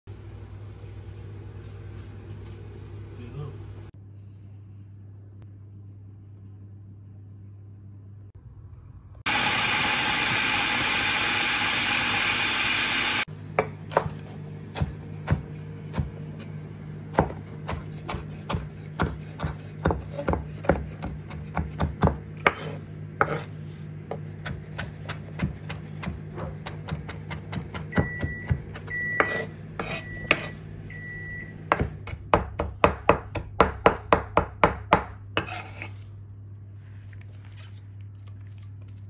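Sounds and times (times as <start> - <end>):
food processor running: 9.3 - 13.3
knife chopping on wooden board: 13.6 - 16.2, 17.1 - 23.5, 24.1 - 30.6, 31.7 - 35.9.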